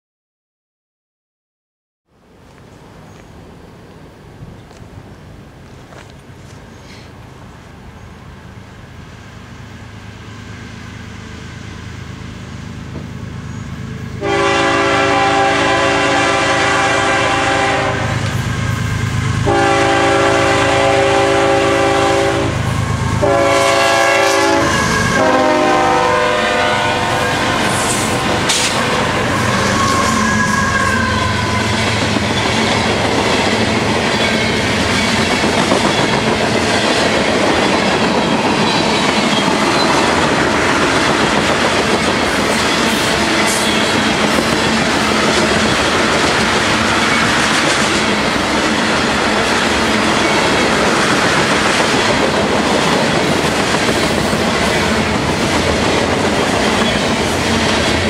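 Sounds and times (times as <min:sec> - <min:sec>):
diesel locomotive engine rumble: 0:02.2 - 0:58.0
train air horn blasts: 0:14.2 - 0:32.1
freight cars clickety-clack: 0:31.3 - 0:58.0.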